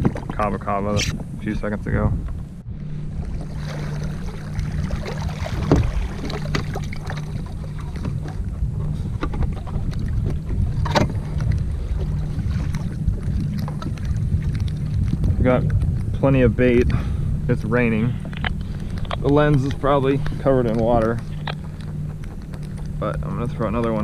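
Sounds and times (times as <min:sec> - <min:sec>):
wind buffeting microphone: 0:00.0 - 0:24.0
sharp clicks: 0:20.7 - 0:23.0.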